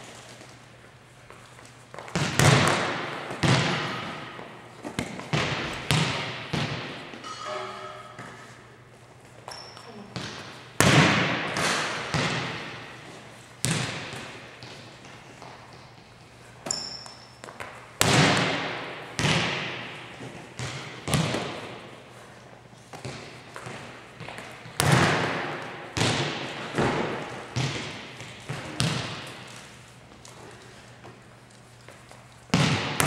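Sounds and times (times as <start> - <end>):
volleyball hits echoing: 2.1 - 8.7, 9.5 - 13.0, 13.6 - 15.2, 18.0 - 21.9, 22.9 - 29.5, 32.5 - 33.0
ball bouncing on wooden floor: 5.0 - 8.5.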